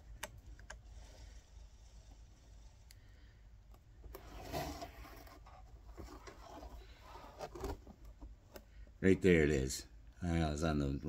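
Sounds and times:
light scrapes and rubs: 0.8s - 3.3s, 4.1s - 8.0s.

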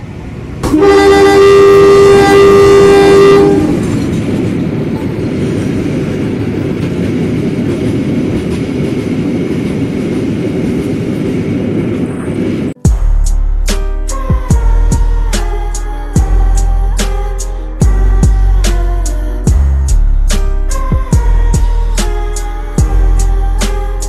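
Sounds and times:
freight train rumbling on rails: 0.0s - 24.0s
locomotive horn: 0.6s - 4.0s.

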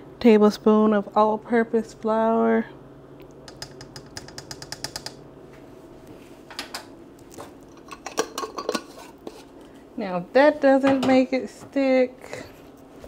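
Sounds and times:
metal spoon tapping crock rim: 3.5s - 5.2s.

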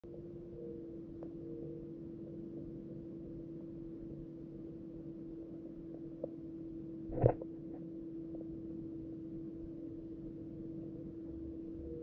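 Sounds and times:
muffled underwater hum: 0.0s - 12.0s
faint tick: 1.2s - 1.4s.

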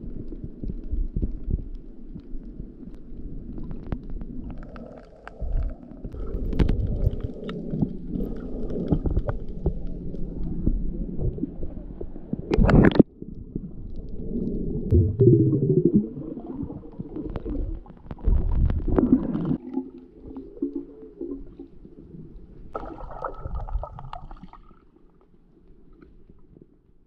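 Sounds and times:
water sloshing and gurgling underwater: 0.0s - 27.0s
low wavering rumbles: 13.1s - 19.5s
splash: 22.7s - 24.8s.

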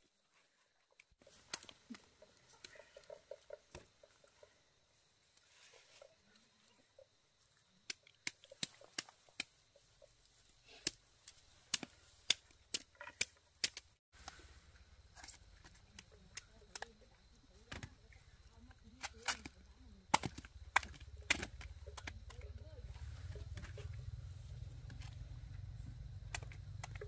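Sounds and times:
sharp irregular clicks or snips: 7.8s - 9.6s, 10.6s - 14.0s, 16.3s - 17.0s, 19.0s - 22.4s, 26.2s - 27.0s.

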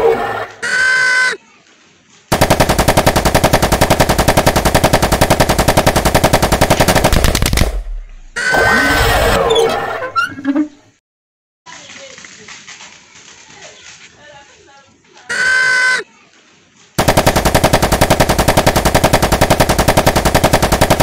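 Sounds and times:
rapid machine-gun fire: 2.3s - 8.3s, 17.0s - 21.0s.

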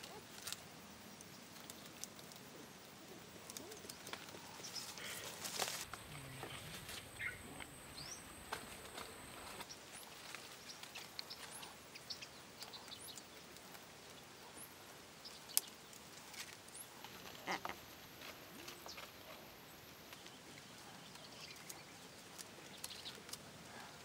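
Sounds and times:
bird chirps: 6.2s - 8.4s.

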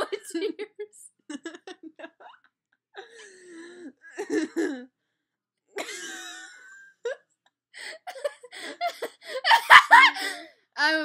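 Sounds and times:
girls laughing: 0.0s - 2.4s, 4.2s - 4.9s, 5.8s - 7.2s, 7.9s - 10.4s.

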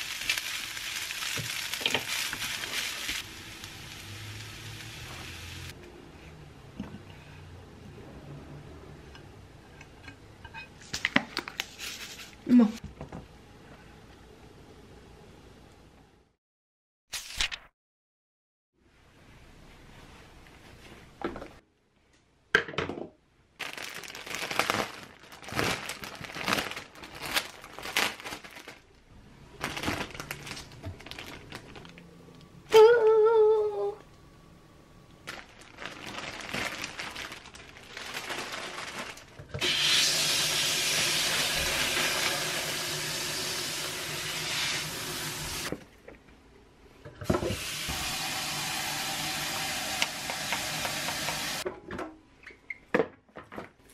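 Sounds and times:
plastic bag crinkling: 0.0s - 3.3s, 23.6s - 29.0s, 29.6s - 32.2s, 35.2s - 39.4s
tap water filling a bowl: 47.3s - 51.6s.

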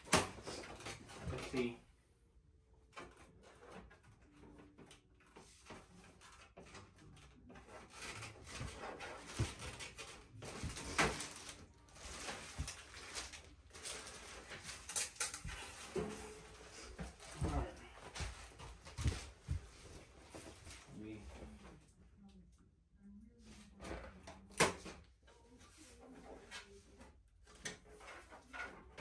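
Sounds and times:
packing tape and wrapping rustling: 3.4s - 21.2s.

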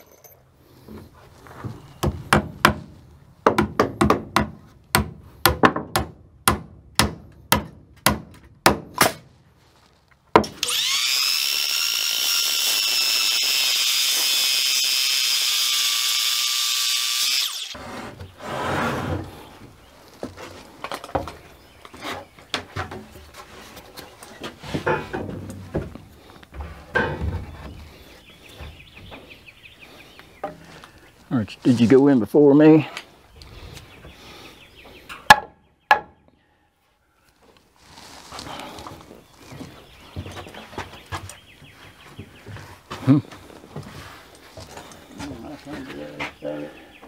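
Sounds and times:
hammer striking nails into wood: 2.0s - 9.2s
lumber knocking: 2.0s - 9.2s, 35.3s - 36.2s
circular saw cutting board: 10.6s - 19.2s.

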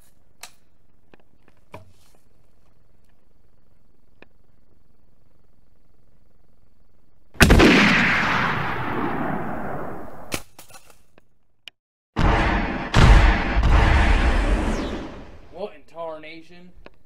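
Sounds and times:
rifle shot with echo: 7.4s - 10.4s, 12.2s - 15.5s.

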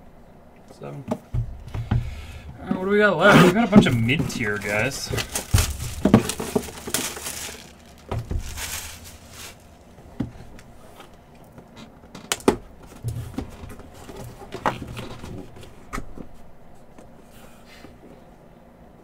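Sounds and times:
cardboard box being handled: 3.5s - 9.8s
cellophane wrap crinkling: 3.6s - 10.0s.

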